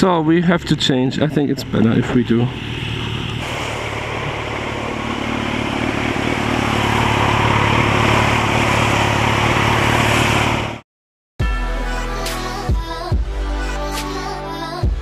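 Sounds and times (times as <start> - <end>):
road noise: 0.0 - 10.8
motorcycle engine running: 1.2 - 10.8.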